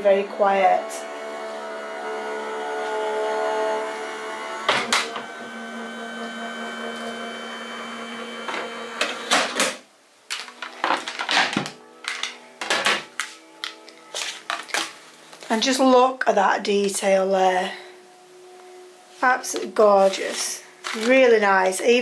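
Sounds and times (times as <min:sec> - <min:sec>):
machine motor humming: 0:00.0 - 0:09.6.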